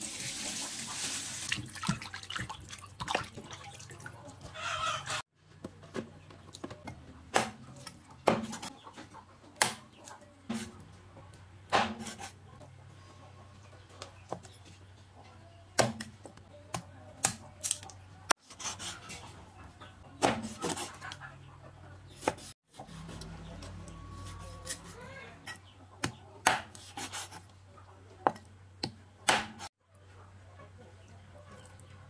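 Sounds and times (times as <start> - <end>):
cleaver chopping on wooden block: 26.0 - 26.8, 28.8 - 29.6.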